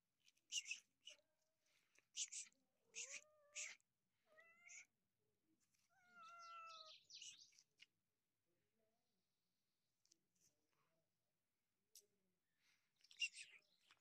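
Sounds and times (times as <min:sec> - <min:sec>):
cat meowing: 0:02.9 - 0:04.9, 0:05.9 - 0:07.0.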